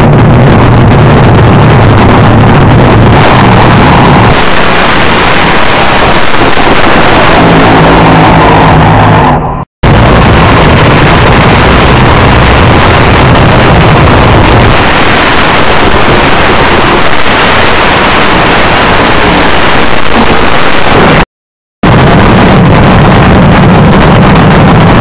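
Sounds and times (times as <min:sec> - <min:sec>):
drag racing engine roaring: 0:00.0 - 0:21.2, 0:21.8 - 0:25.0.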